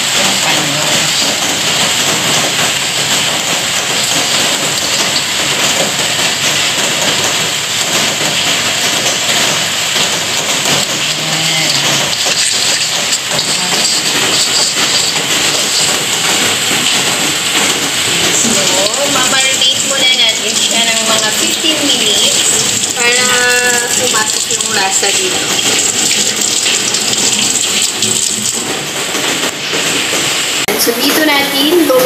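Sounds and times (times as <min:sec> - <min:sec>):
heavy rain falling: 0:00.0 - 0:32.0.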